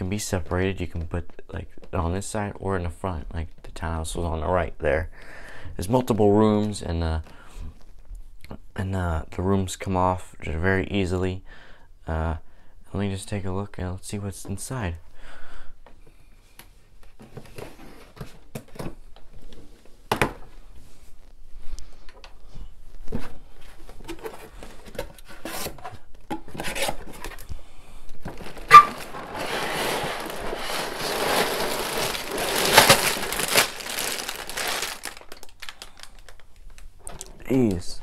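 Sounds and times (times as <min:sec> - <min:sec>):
plastic bags rustling in box: 0:28.2 - 0:37.3
cardboard box flap scraping: 0:28.3 - 0:33.6.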